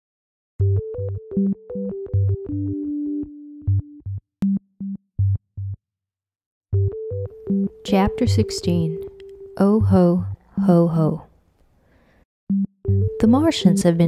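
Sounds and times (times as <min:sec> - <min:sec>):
deep bass: 0:12.5 - 0:13.4.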